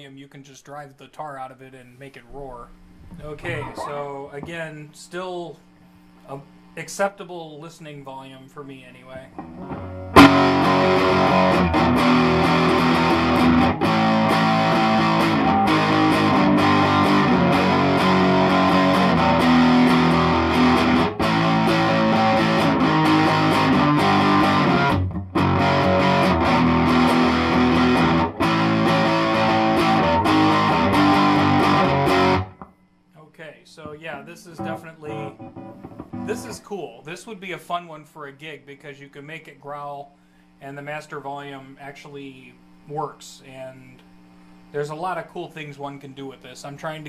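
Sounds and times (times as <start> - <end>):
overdriven electric guitar chords: 9.3 - 32.8, 33.8 - 36.6.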